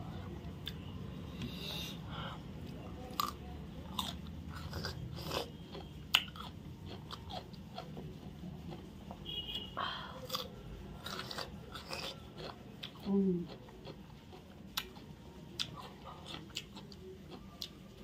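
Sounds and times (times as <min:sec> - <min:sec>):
person chewing cucumber: 0:00.0 - 0:09.2, 0:10.0 - 0:18.0.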